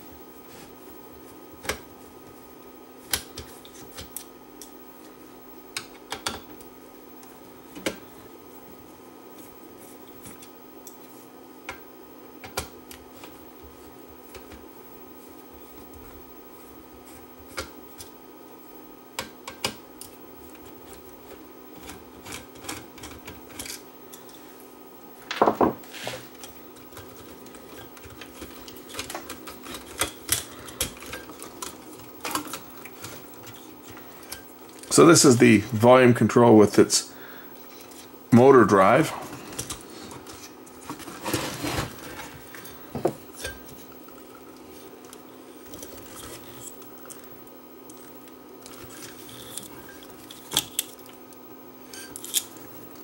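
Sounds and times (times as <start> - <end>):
faint steady hum: 0.0 - 53.0
louder knocks: 25.3 - 25.8.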